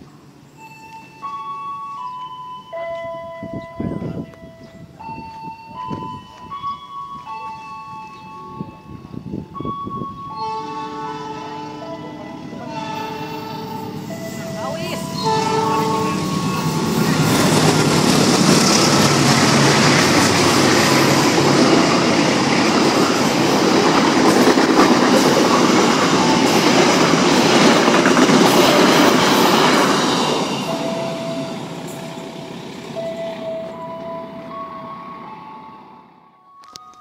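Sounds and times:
train wheels rushing on rails: 12.0 - 35.0.

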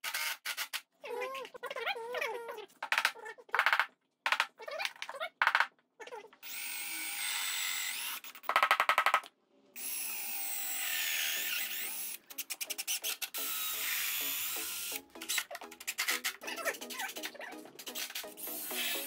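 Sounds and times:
cordless drill boring into wood: 6.4 - 8.3, 9.8 - 12.2, 12.8 - 15.0, 18.4 - 19.0.

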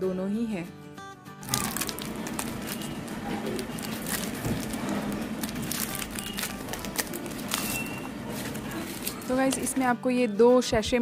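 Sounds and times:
packaging crinkling: 1.4 - 9.8.

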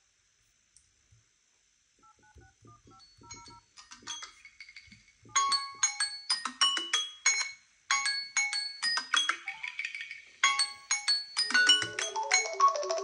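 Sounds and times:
marimba-like alarm melody: 10.4 - 13.0.

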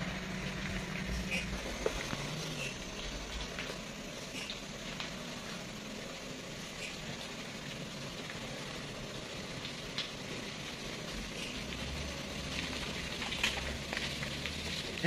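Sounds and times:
distant truck diesel engine labouring: 0.0 - 15.0.

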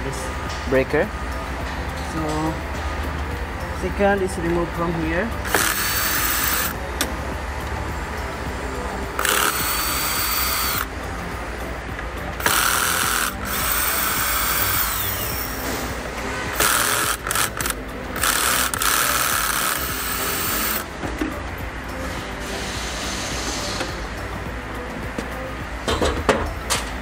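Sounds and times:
cordless drill running: 5.4 - 6.8, 9.2 - 10.9, 12.4 - 15.8, 16.5 - 20.8.

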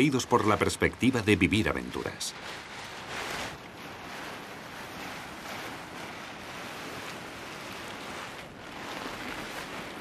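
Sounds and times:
wind blowing: 0.0 - 10.0.

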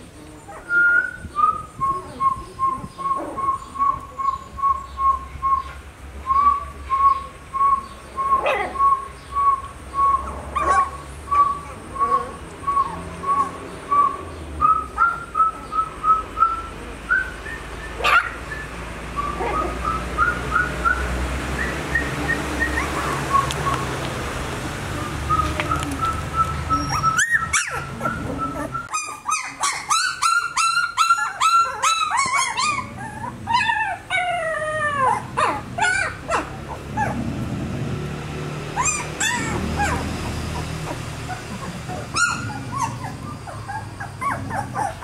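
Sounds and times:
puppies whining and squeaking: 10.1 - 15.6, 17.9 - 21.0, 21.6 - 23.9, 25.2 - 37.2, 38.8 - 45.0
puppy yelps: 10.5 - 12.3, 18.0 - 18.4, 19.3 - 20.0, 26.7 - 37.2, 38.8 - 45.0.

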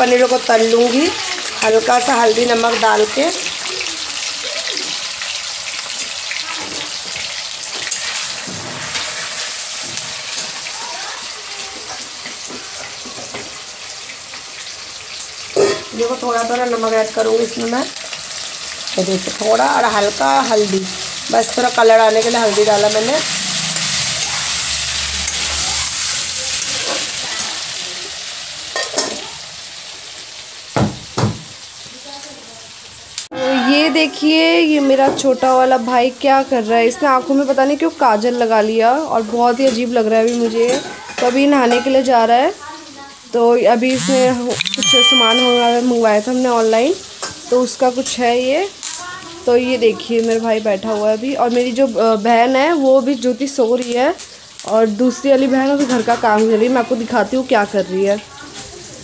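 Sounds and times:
cheese frying in hot oil: 0.0 - 44.6, 45.2 - 59.0
knocks and thumps: 30.8 - 31.5.

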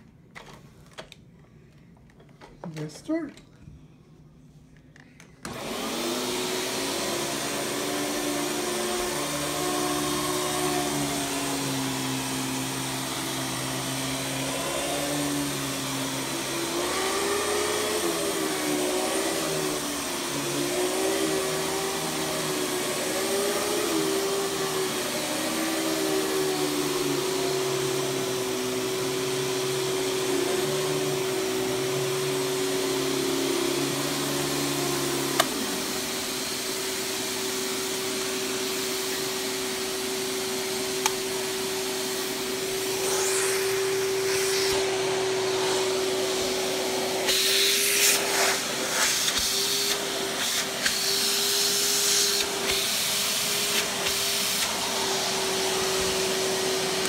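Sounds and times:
vacuum cleaner motor whine: 5.4 - 57.0
rushing suction noise: 40.9 - 57.0.

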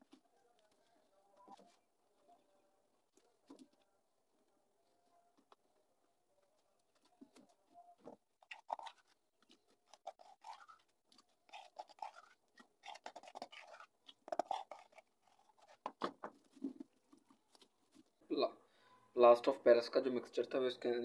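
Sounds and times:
paper pot scraping on board: 11.5 - 16.9.

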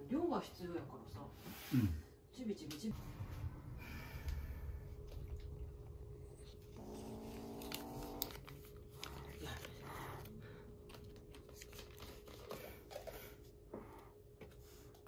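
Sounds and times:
kitten growling: 5.3 - 10.3.

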